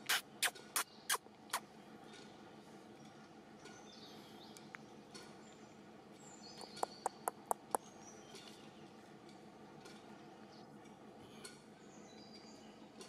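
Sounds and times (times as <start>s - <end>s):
forest background hiss: 0.0s - 13.0s
high bird chirps: 6.3s - 8.6s.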